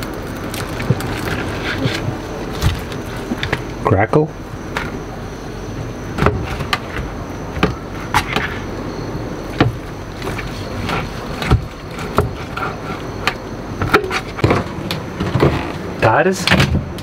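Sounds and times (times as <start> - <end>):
pork crackling cracking: 0.0 - 3.8
wind rumble: 0.0 - 17.0.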